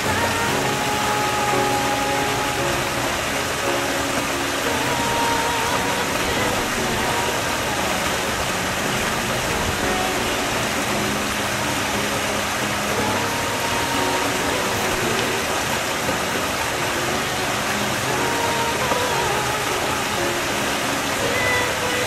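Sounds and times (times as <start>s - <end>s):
water spilling into pool: 0.0s - 22.0s.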